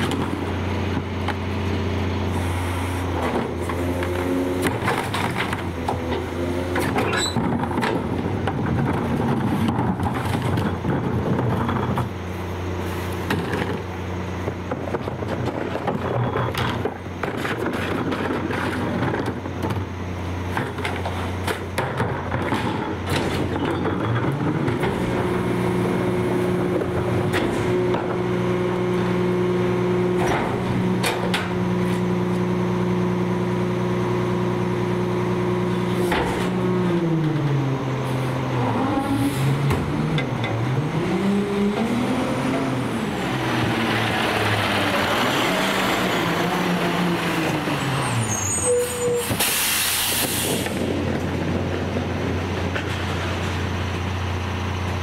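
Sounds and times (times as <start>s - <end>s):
garbage truck engine running: 0.0s - 55.0s
carts knocking and clanking: 20.5s - 25.3s
rising engine whine: 23.6s - 49.3s.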